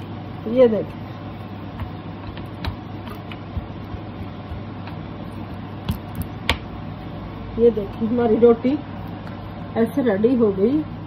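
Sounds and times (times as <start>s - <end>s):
hands patting dough on wooden board: 1.6s - 6.7s.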